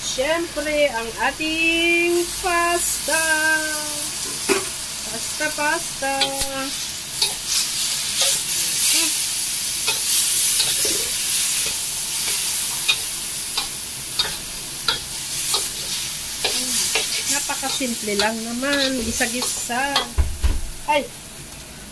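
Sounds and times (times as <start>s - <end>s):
noodles sizzling in a wok: 0.0s - 21.9s
spatula clinking and scraping pan: 6.0s - 8.6s, 9.8s - 20.2s.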